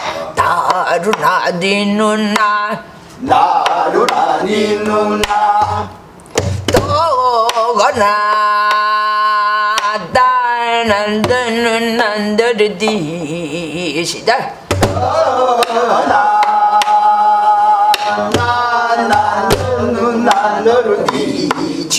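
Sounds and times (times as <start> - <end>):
woman singing wordless melody: 0.4 - 2.9, 6.8 - 14.3.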